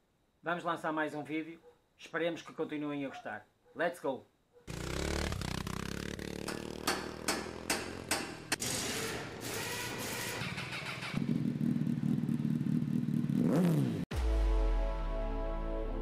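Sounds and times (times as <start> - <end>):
motorcycle engine running: 4.7 - 14.0
sharp knocks: 6.4 - 8.6.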